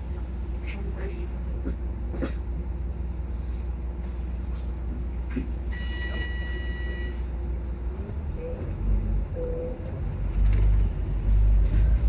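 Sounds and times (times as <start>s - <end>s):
bus engine and road rumble: 0.0s - 12.0s
high electronic beep: 5.8s - 7.2s.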